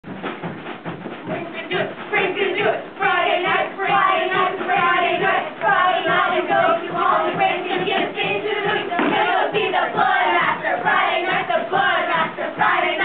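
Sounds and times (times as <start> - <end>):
voices singing in chorus: 1.4 - 13.0.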